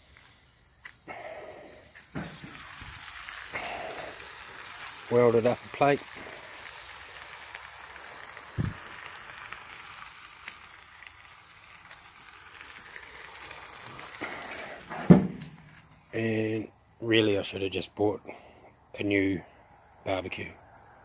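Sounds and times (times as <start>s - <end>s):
food sizzling on griddle: 1.8s - 16.5s
barbecue lid knocking shut: 14.9s - 15.6s
low thump: 14.9s - 15.6s.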